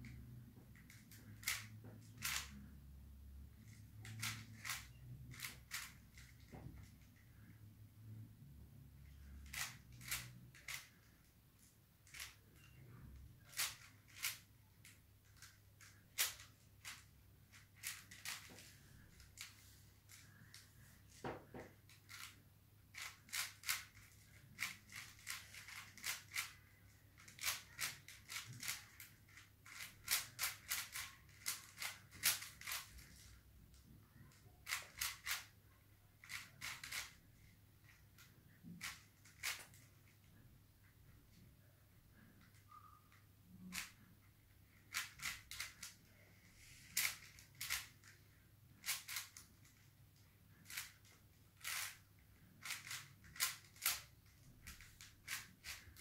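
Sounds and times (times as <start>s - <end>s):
puzzle cube plastic clicks: 0.8s - 2.7s, 3.6s - 7.1s, 9.0s - 11.1s, 13.4s - 20.6s, 21.8s - 33.3s, 34.2s - 35.5s, 36.2s - 37.2s, 37.9s - 39.9s, 44.7s - 46.1s, 46.8s - 49.9s, 50.6s - 56.0s.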